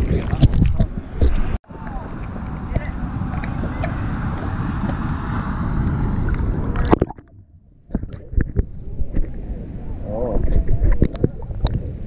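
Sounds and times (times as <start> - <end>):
wind on microphone: 0.0 - 7.3, 7.9 - 12.0
water sloshing and splashing: 0.0 - 9.4
muffled low rumble: 0.0 - 12.0.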